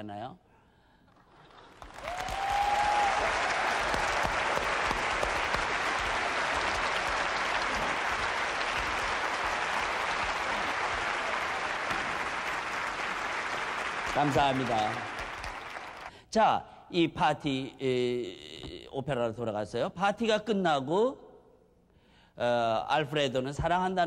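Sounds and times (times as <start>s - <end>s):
audience applauding: 1.1s - 16.1s.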